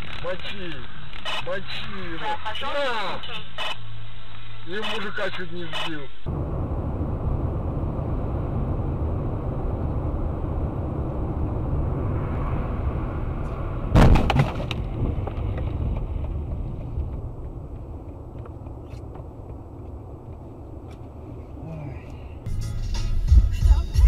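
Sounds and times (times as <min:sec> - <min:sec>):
car road and engine noise: 0:06.2 - 0:24.0
vehicle crash impacts: 0:12.7 - 0:17.6.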